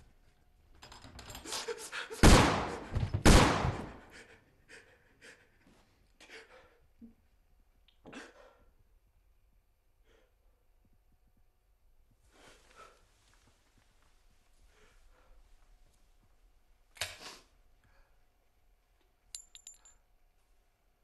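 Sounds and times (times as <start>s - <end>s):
gunshots with echo: 2.2s - 4.0s.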